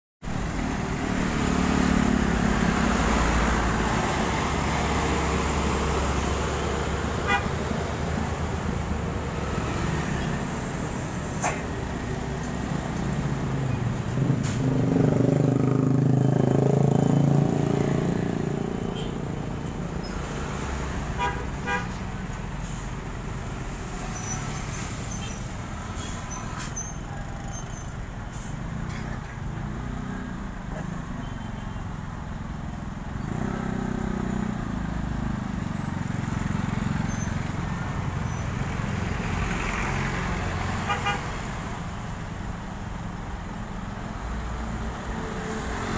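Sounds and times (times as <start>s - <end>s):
vehicle engines passing: 0.2s - 45.9s
heavy engine going by: 0.3s - 21.2s, 21.9s - 45.9s
horn toots: 40.8s - 41.4s.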